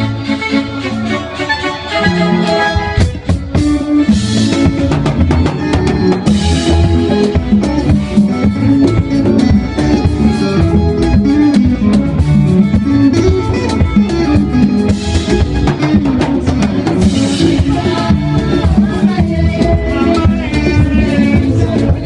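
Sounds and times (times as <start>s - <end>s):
electric guitar: 0.0s - 22.0s
drum kit: 1.9s - 22.0s.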